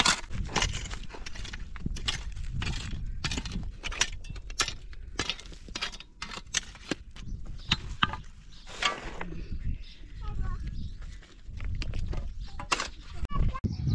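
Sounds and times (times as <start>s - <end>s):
digging tools striking stony soil: 0.0s - 9.2s, 11.6s - 13.0s.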